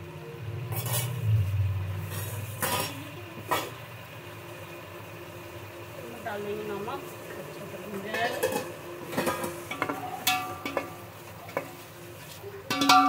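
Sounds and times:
low rumble: 0.2 - 4.1
metal scraping a cooking pot: 0.7 - 3.8.

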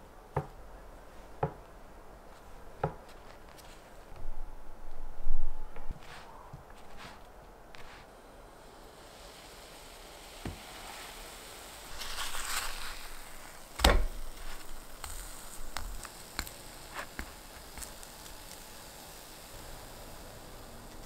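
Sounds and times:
bread sizzling in oil: 7.8 - 21.0.

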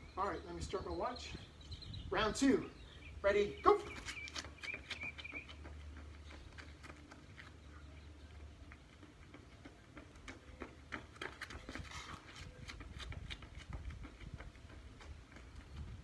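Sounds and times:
sneakers running on concrete: 2.6 - 16.0
scuffing steps: 3.7 - 16.0.

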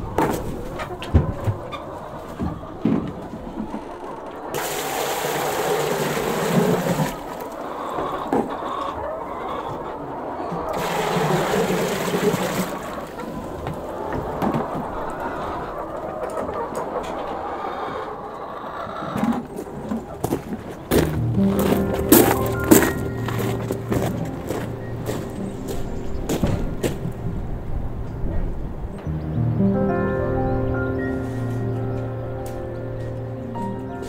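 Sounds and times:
hens clucking: 0.0 - 29.3
water poured into plastic bucket: 4.6 - 7.5, 10.8 - 13.1.

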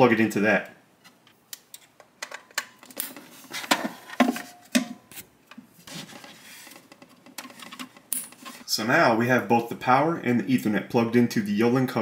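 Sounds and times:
cable clicking and tapping: 6.7 - 8.4.

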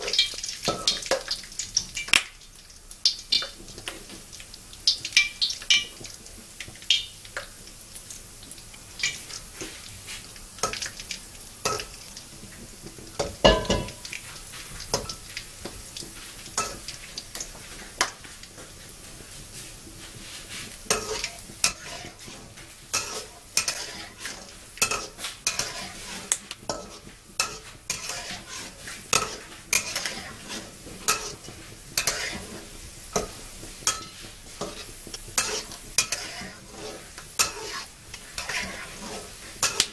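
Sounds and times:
peanuts sizzling in oil: 0.0 - 39.9
metal spatula scraping a wok: 19.4 - 39.9.

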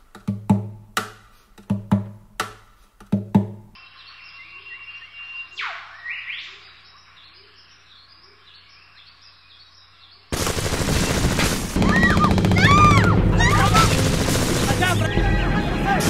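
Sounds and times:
birds chirping: 3.8 - 10.3, 11.8 - 16.0
rapid gunfire: 10.3 - 15.2.

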